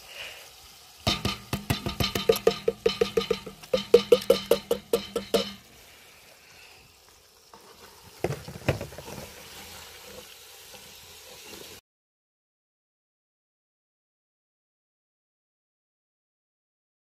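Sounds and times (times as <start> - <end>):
tin can knocking on metal pot: 1.0 - 5.7.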